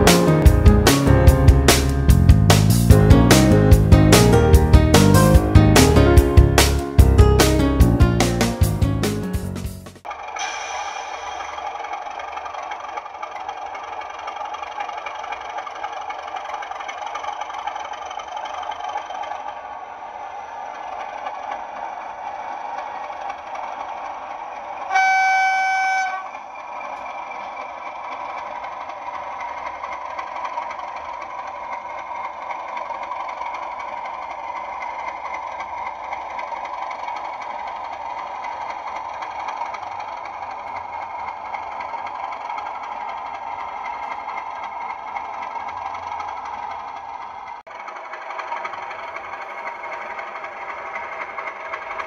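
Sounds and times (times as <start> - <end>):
model locomotive engine running: 0.0 - 52.0
locomotive horn blast: 24.9 - 26.4.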